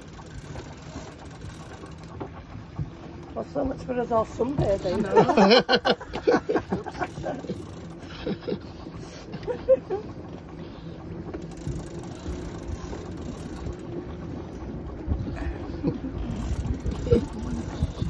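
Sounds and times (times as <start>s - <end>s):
boat engine running: 0.0s - 18.0s
fishing reel clicking rapidly: 0.0s - 18.0s
wind noise: 14.9s - 18.0s.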